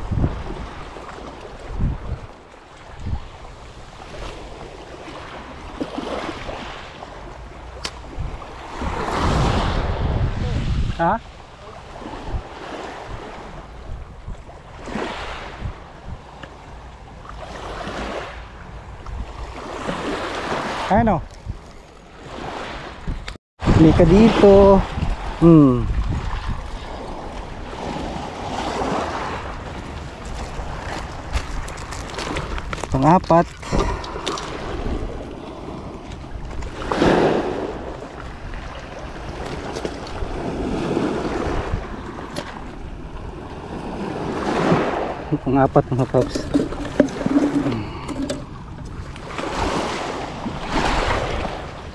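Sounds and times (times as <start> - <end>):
wind rumble on microphone: 0.0 - 51.9
waves washing onto pebbles: 23.6 - 42.3, 43.5 - 51.9.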